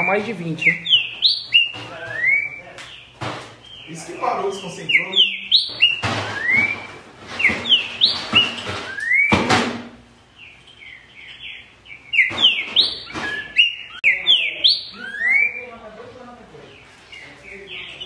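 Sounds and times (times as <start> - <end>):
bird singing whistled notes: 0.0 - 3.1, 3.7 - 9.4, 10.4 - 15.8.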